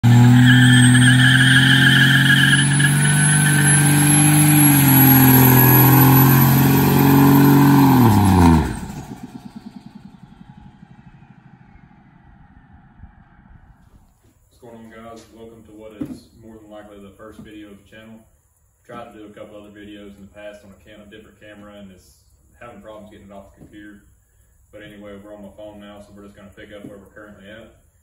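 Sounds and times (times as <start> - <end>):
diesel engine revving: 0.0 - 13.9
thin high whine: 0.1 - 15.9.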